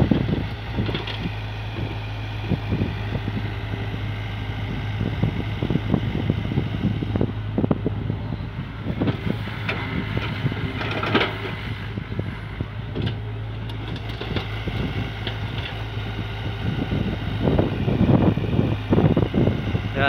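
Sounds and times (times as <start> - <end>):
excavator diesel engine running: 0.0 - 20.0
excavator arm and bucket clunking: 0.1 - 2.0, 8.9 - 12.0, 12.6 - 16.9.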